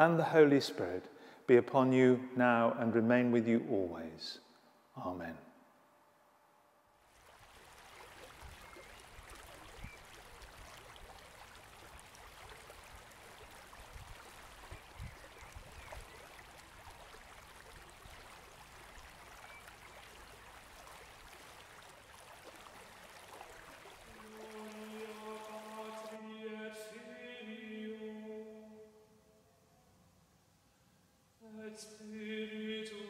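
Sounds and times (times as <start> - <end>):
stream rushing over its bed: 7.1 - 26.2.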